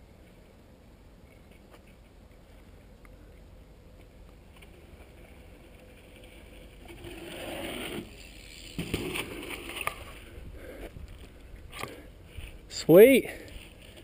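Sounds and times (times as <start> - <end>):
bike tyres rolling on dirt: 3.9 - 14.0
bike rattles: 4.5 - 12.8
bike landing knock: 8.7 - 9.7.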